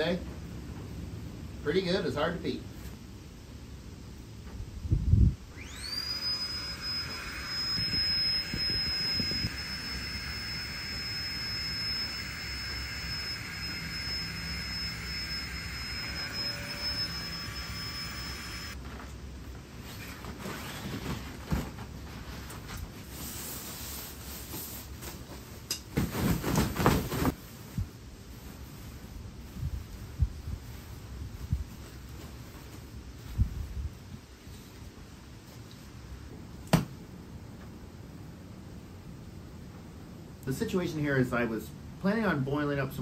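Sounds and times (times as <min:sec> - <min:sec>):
electric air pump whining: 0:05.5 - 0:18.8
nylon sleeping bag rustling: 0:19.8 - 0:33.8.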